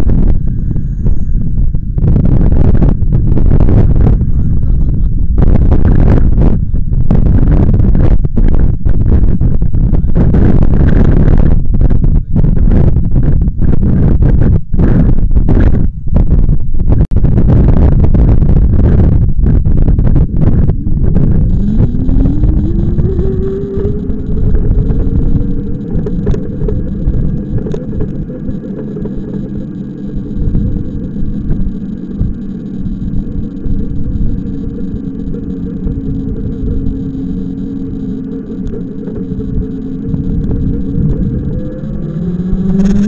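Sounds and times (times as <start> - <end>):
wheels rumbling on path: 0.0 - 43.0
wind: 0.0 - 43.0
electric motor whining: 20.3 - 43.0.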